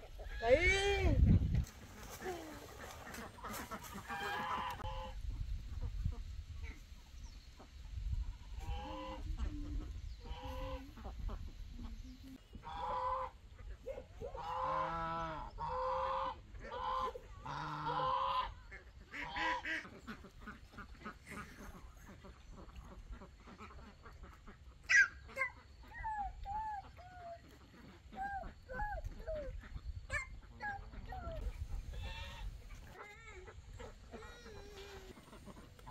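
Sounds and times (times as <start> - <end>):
farm fowl calling: 2.0 - 5.2, 12.6 - 13.6, 14.4 - 24.0, 29.6 - 33.0.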